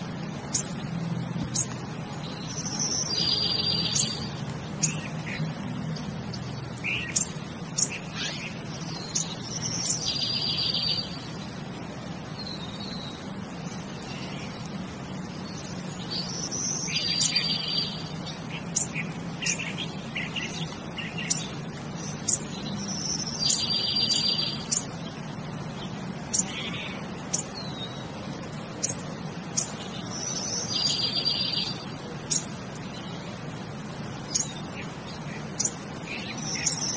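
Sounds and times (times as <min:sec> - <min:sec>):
bird chirps and calls: 0:00.0 - 0:11.6, 0:12.2 - 0:36.9.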